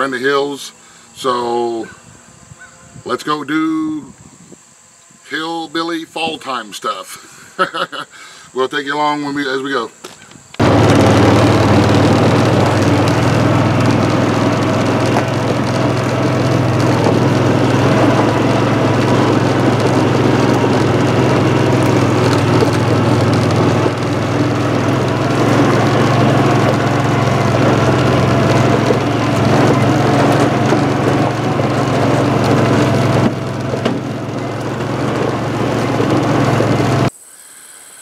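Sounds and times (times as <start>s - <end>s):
vehicle engine running: 10.6s - 37.1s.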